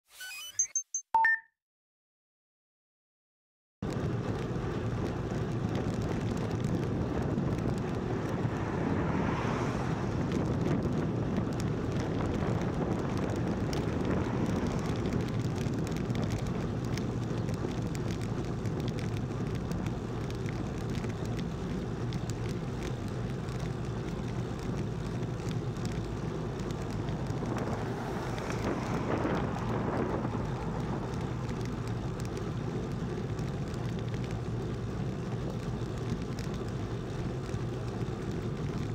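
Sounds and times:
road noise: 3.8s - 38.9s
wind buffeting microphone: 4.1s - 21.0s, 24.8s - 33.5s.

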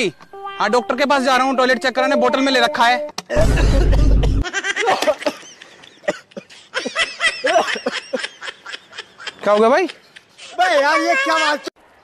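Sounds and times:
snickering laughter: 3.3s - 10.4s.

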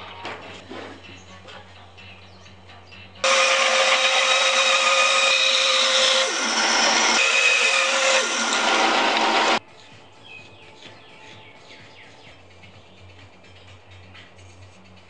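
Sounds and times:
bandsaw cutting wood: 3.2s - 9.6s.

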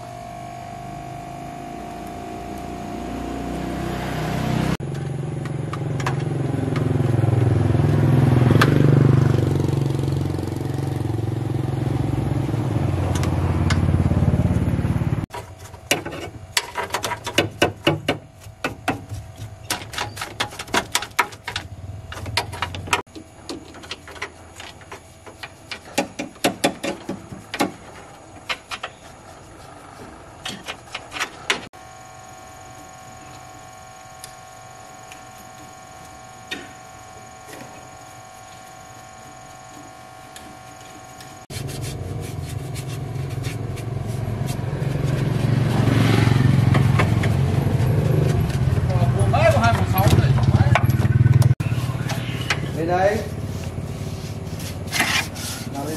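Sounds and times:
motor humming: 0.0s - 15.6s, 27.2s - 55.9s.

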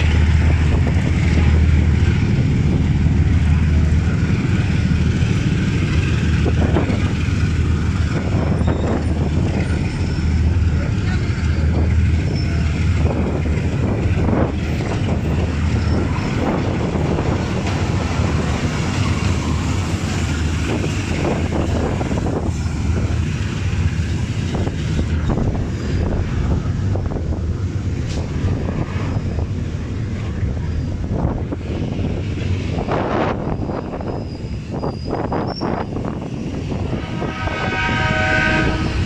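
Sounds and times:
freight train rumbling past: 0.0s - 39.0s
steel wheels clattering on rails: 0.0s - 39.0s
wind buffeting microphone: 0.0s - 39.0s.

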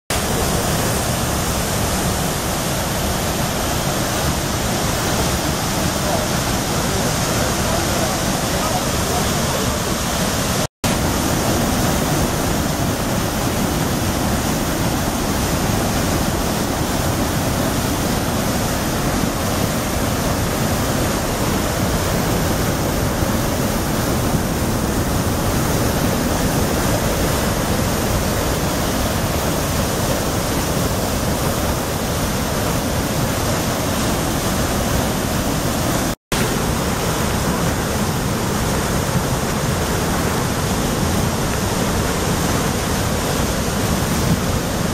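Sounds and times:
whitewater rushing over rocks: 0.1s - 44.9s.

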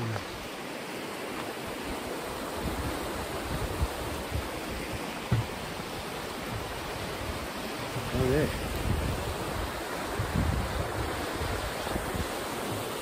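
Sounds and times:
river water rushing: 0.0s - 13.0s
low bumps on microphone: 5.2s - 5.7s.

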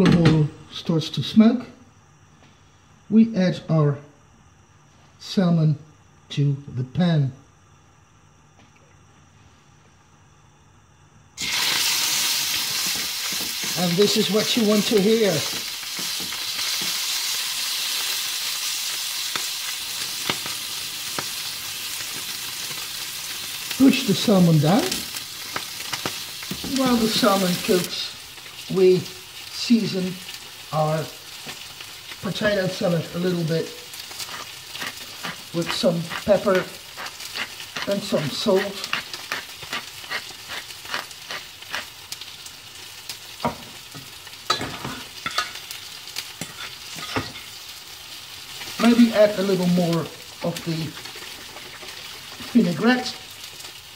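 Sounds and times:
fish sizzling in oil: 11.4s - 53.9s.

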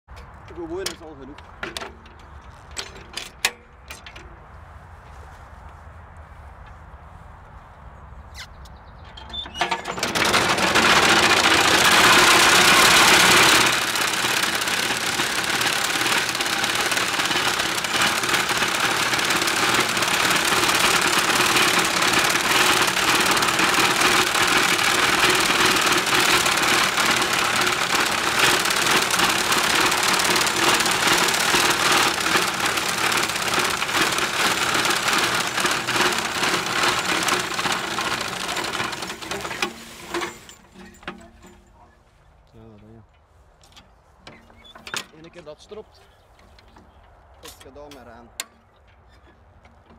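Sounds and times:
mower cutter clattering: 0.1s - 4.4s, 9.0s - 41.8s.

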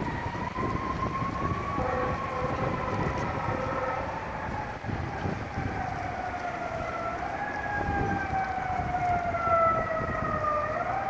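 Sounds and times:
fire engine siren wailing: 0.0s - 11.0s
low rumble of street traffic: 0.0s - 11.0s.

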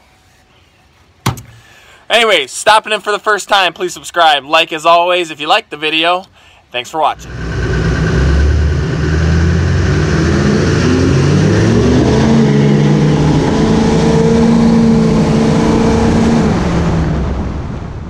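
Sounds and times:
pickup truck engine accelerating: 7.2s - 17.8s.

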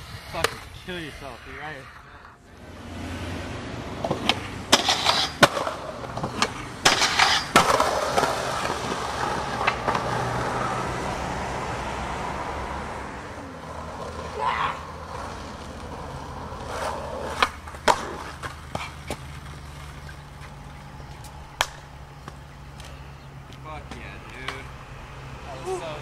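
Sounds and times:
skateboard wheels rolling: 0.0s - 26.0s
skateboard deck pops and clacks: 4.0s - 10.1s, 16.7s - 22.4s.

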